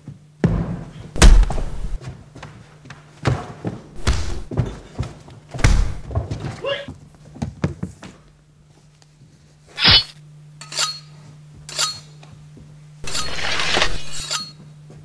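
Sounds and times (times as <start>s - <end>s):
steady low hum: 0.0s - 15.0s
sharp metallic hit: 9.8s - 11.0s
metallic rings: 9.8s - 12.2s, 13.0s - 14.6s.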